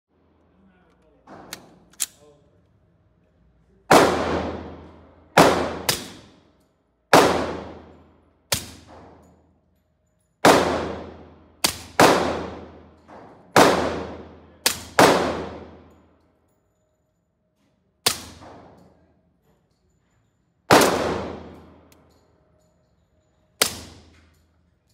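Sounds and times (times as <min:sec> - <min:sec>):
echo off indoor range: 0:00.1 - 0:24.9
suppressed pistol shots: 0:10.4 - 0:12.8, 0:20.7 - 0:21.7.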